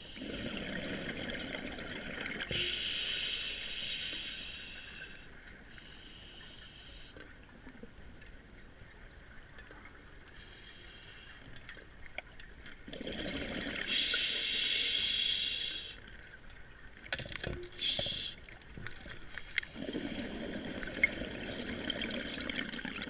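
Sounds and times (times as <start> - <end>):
faint underwater ticks: 2.4 - 12.9, 13.8 - 20.4
hissing regulator breath: 2.5 - 7.2, 13.9 - 16.0, 17.8 - 18.4.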